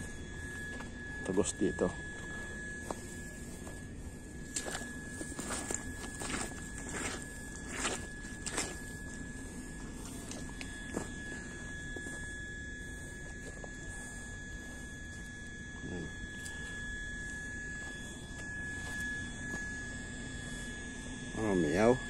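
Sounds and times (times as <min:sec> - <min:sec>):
high-pitched hum: 0:00.0 - 0:22.0
footsteps on dry dirt: 0:02.1 - 0:12.3, 0:17.8 - 0:19.7.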